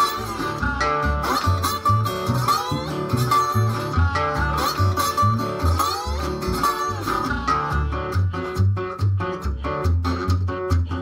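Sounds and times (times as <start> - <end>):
harmonica: 0.0 - 8.1
slide guitar: 0.0 - 11.0
washtub bass plucking low notes: 0.0 - 11.0.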